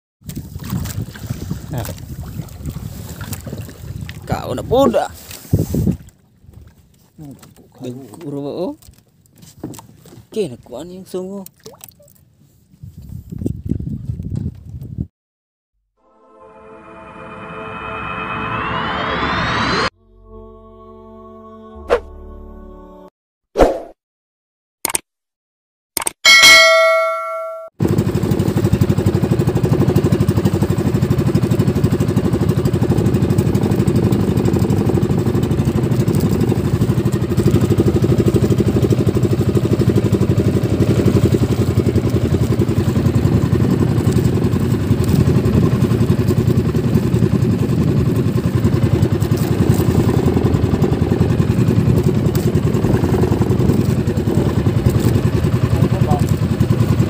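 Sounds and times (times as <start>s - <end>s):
boat engine running: 27.8s - 57.0s.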